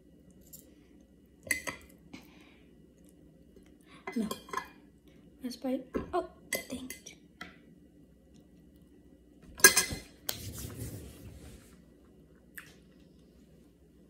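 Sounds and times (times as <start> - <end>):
metal fork clattering on plate: 9.6 - 10.0.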